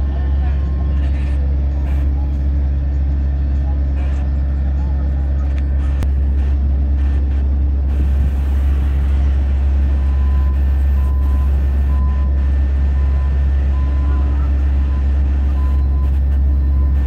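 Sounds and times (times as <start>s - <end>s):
vehicle engines idling: 0.0s - 17.0s
backup alarm beeping: 9.9s - 17.0s.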